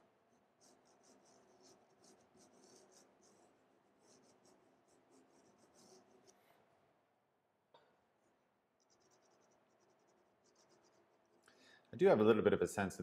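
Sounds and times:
pencil scratching on paper: 0:00.3 - 0:06.6, 0:08.8 - 0:11.4.

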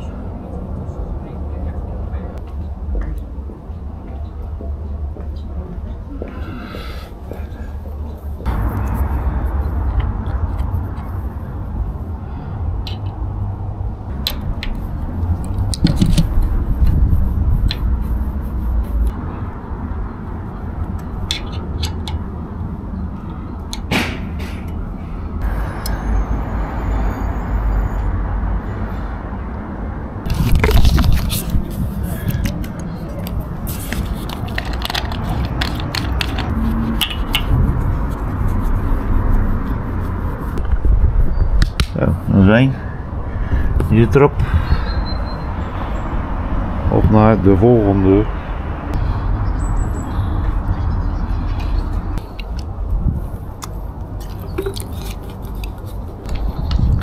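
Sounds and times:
low rumble: 0:07.2 - 0:21.2
clicks and scrapes of hand work: 0:30.3 - 0:38.8.

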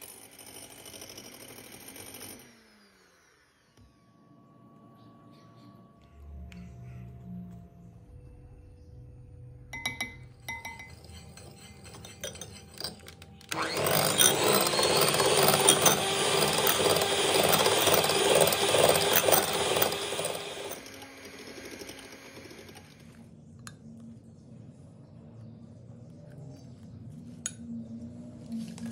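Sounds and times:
electric hand mixer beating: 0:11.0 - 0:23.2.

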